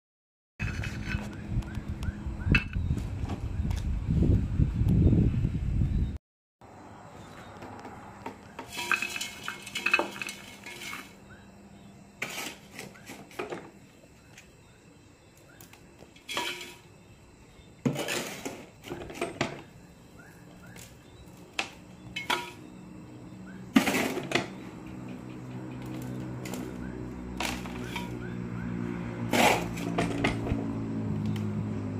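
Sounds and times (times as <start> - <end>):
spade scraping gritty soil: 0.6 - 1.4, 8.6 - 11.2, 12.2 - 13.6, 16.2 - 16.9, 17.8 - 19.4, 22.2 - 22.7, 23.7 - 24.6, 27.4 - 28.2, 29.2 - 30.4
soil rattling into pot: 8.6 - 11.2, 16.2 - 16.9, 17.8 - 19.6.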